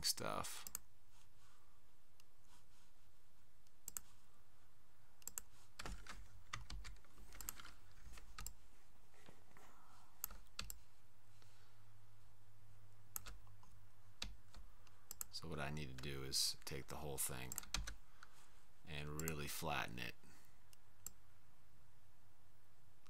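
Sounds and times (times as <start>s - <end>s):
faint low hum: 0.0s - 23.0s
mouse and keyboard clicks: 5.2s - 8.6s.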